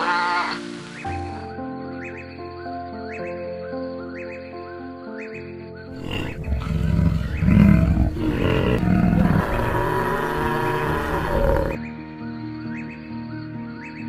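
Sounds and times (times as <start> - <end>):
background music: 0.0 - 14.0
large animal roaring and growling: 6.0 - 11.8.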